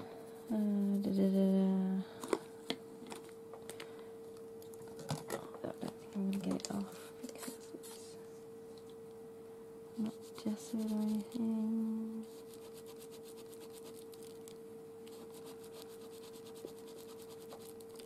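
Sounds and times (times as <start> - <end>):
faint steady hum: 0.0 - 18.0
tissue scrubbing paper: 10.0 - 11.3, 12.2 - 14.1, 15.1 - 17.8
person humming: 10.0 - 12.3.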